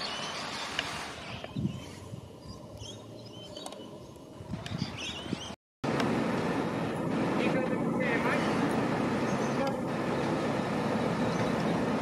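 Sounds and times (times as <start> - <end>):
birds chirping: 0.0 - 5.6, 7.1 - 12.0
steady background noise: 5.9 - 12.0.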